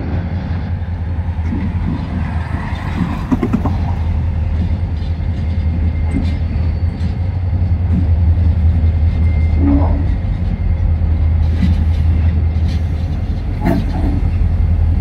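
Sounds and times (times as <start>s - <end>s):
diesel locomotive engine rumbling: 0.0s - 15.0s.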